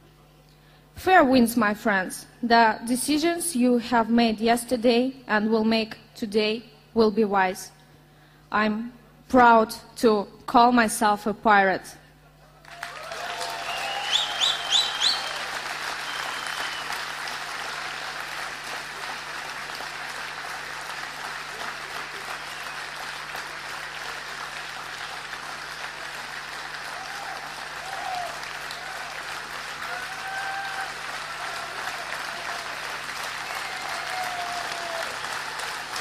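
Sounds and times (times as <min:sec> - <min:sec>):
audience applauding: 0:12.6 - 0:36.0
short rising whistles: 0:13.6 - 0:17.0.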